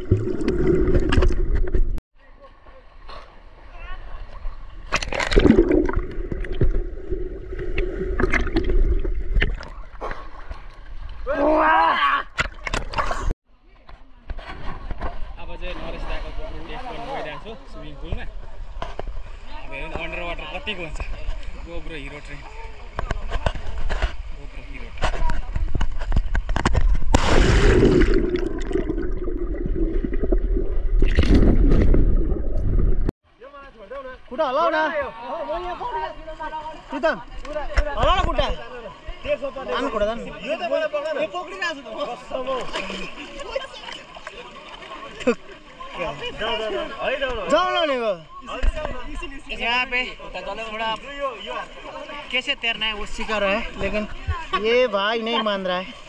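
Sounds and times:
underwater air bubbles gurgling: 0.0 - 2.0, 5.0 - 10.0, 27.3 - 33.1.

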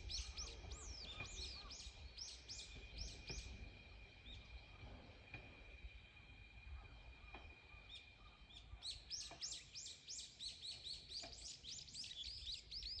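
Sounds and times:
small bird chirping: 0.0 - 4.7, 7.3 - 13.0
faint low outdoor rumble: 0.0 - 13.0.

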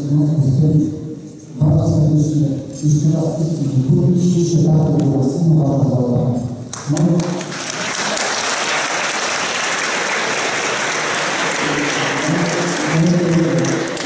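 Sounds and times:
audience applauding: 7.0 - 14.0.

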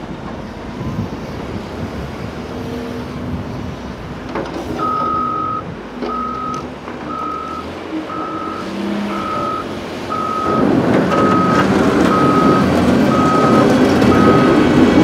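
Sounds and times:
diesel engine running: 4.0 - 15.0
backup alarm beeping: 4.8 - 14.8.

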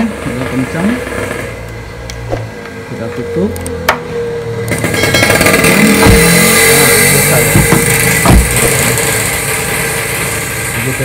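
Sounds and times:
vehicle engine running: 0.0 - 11.0
dull knocks: 6.0 - 6.4, 7.5 - 8.8.

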